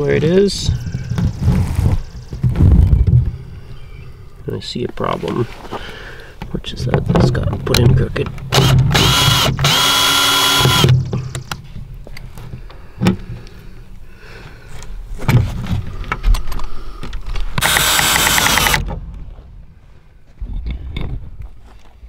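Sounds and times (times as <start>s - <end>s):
cordless drill whining: 8.5s - 10.9s, 17.6s - 18.9s.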